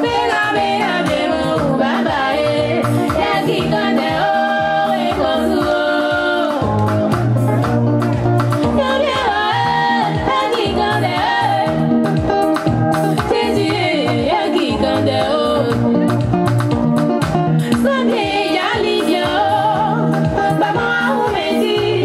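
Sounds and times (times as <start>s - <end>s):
woman singing into microphone: 0.0s - 6.9s, 8.6s - 12.1s, 13.1s - 16.2s, 17.6s - 22.0s
amplified band with bass: 0.0s - 22.0s.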